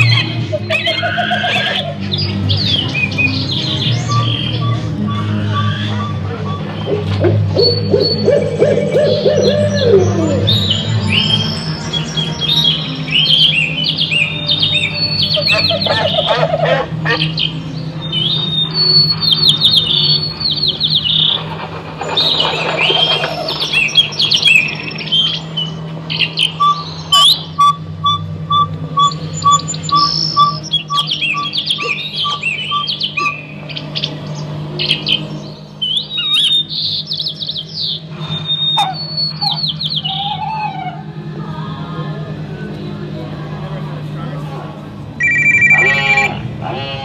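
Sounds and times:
electronic bird-like chirps: 0.0 - 40.9, 45.2 - 46.9
low electronic hum: 0.0 - 47.0
short electronic beeps: 26.6 - 33.4, 45.2 - 46.4.

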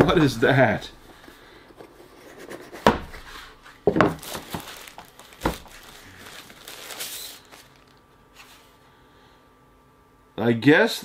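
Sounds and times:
packaging crinkling and rustling: 1.1 - 8.7
cardboard knocks: 2.8 - 3.2, 3.9 - 4.7, 5.4 - 5.8.

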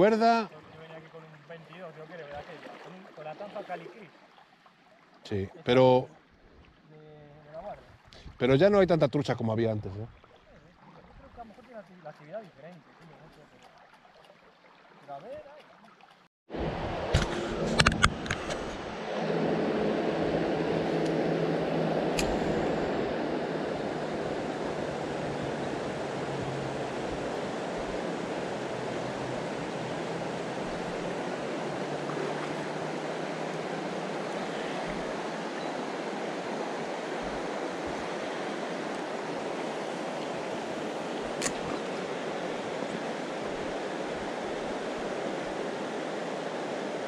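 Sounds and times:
river water rushing over stones: 22.2 - 47.0.

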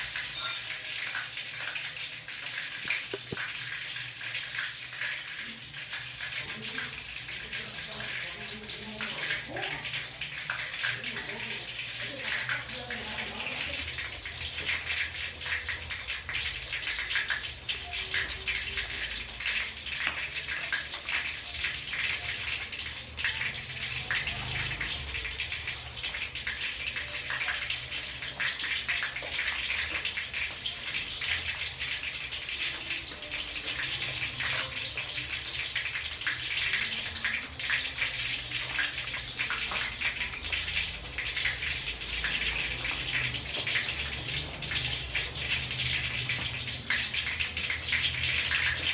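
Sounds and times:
fish sizzling in hot oil: 0.0 - 48.9
oil crackling pops: 2.8 - 3.6.

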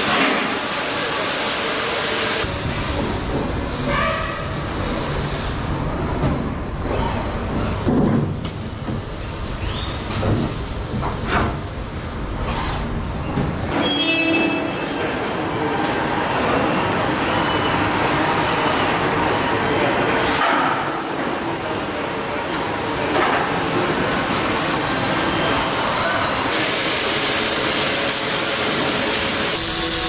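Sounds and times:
rising machine whine: 29.6 - 30.0.

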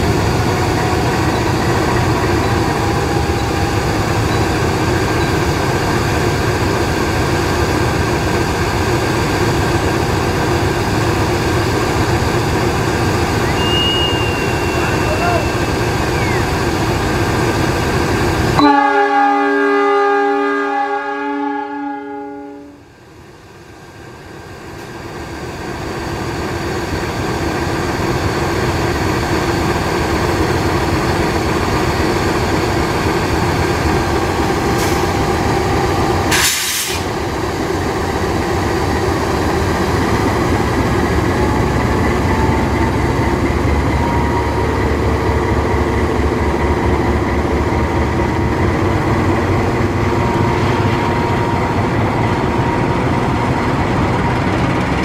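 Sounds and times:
locomotive diesel engine running: 0.0 - 19.3, 22.9 - 55.0
short hiss: 36.3 - 37.1.

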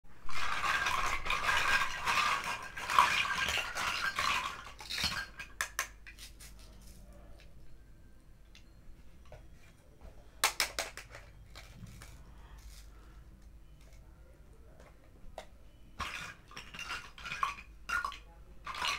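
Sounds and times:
plastic toy pieces clattering: 0.2 - 7.0, 10.4 - 12.9, 16.0 - 18.9.

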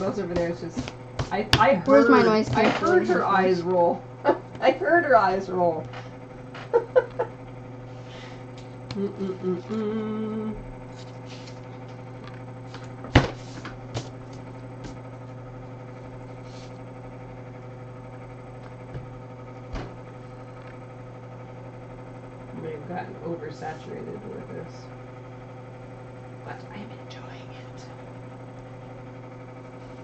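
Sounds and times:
low electrical hum: 0.0 - 30.0
person humming: 1.8 - 3.2, 8.9 - 10.6.

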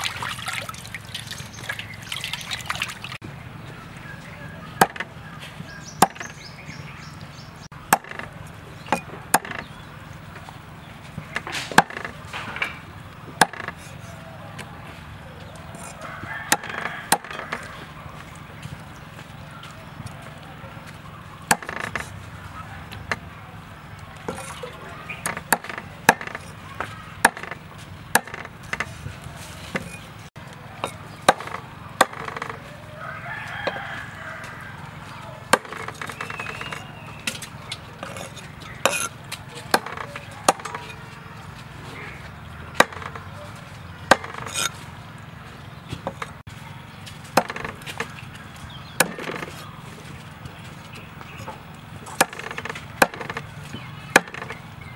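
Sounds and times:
cleaver chopping on wooden block: 4.8 - 5.1, 5.9 - 6.4, 7.9 - 8.3, 8.9 - 9.7, 11.4 - 12.1, 13.4 - 14.0, 15.7 - 17.7, 21.5 - 22.0, 25.2 - 27.6, 28.2 - 28.9, 30.8 - 32.6, 35.5 - 37.4, 38.0 - 41.0, 42.8 - 43.3, 44.1 - 44.7, 47.3 - 48.1, 48.9 - 49.6, 51.4 - 54.6
rooster crowing: 14.0 - 18.2, 32.5 - 35.5.

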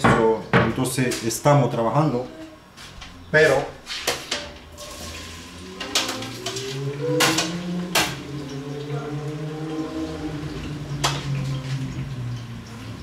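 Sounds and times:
low steady hum: 0.0 - 13.0
cookware and utensils clanking: 3.1 - 8.9, 10.9 - 11.8.

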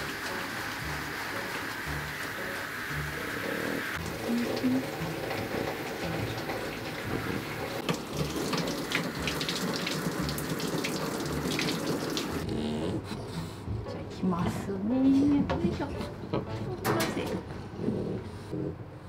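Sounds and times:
shower water splashing in metal tub: 0.0 - 12.4.

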